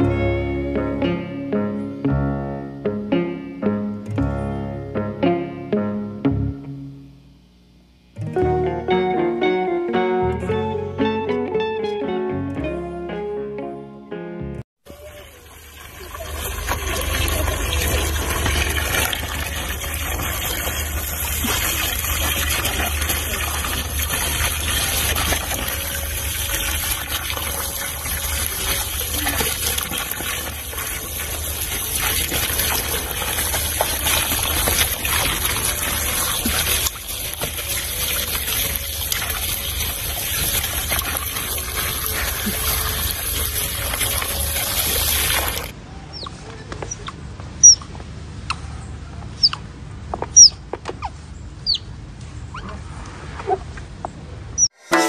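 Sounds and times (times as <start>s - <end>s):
water pouring into a tub: 14.9s - 45.8s
water splashing and churning: 15.0s - 45.8s.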